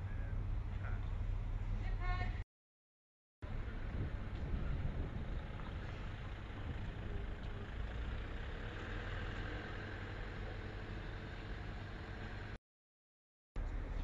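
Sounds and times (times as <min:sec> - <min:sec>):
low mechanical rumble: 0:00.0 - 0:02.4, 0:03.4 - 0:12.6.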